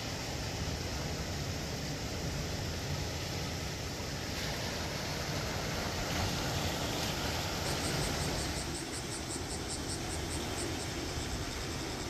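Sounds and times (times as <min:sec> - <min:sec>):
surf washing: 0:00.0 - 0:12.0
wind: 0:00.0 - 0:12.0
high-pitched insect chirping: 0:07.2 - 0:12.0.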